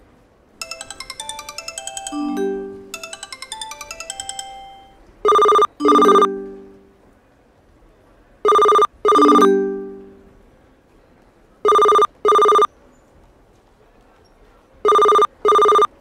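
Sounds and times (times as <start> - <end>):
telephone ringing: 0.6 - 6.9, 8.5 - 10.2, 11.7 - 12.7, 14.9 - 16.0
low tone: 0.6 - 7.0, 9.3 - 10.3.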